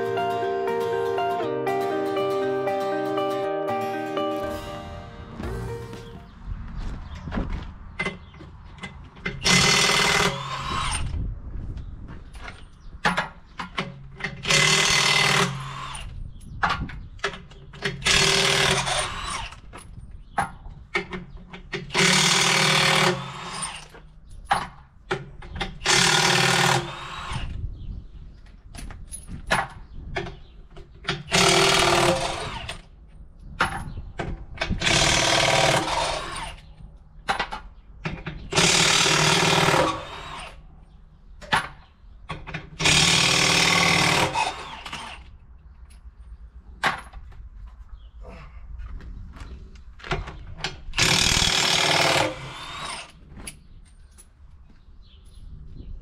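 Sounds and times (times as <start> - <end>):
impact wrench running: 38.5 - 40.4, 42.8 - 44.7.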